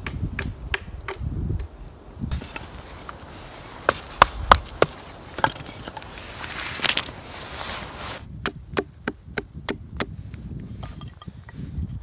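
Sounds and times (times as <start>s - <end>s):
campfire crackling: 0.6s - 8.2s.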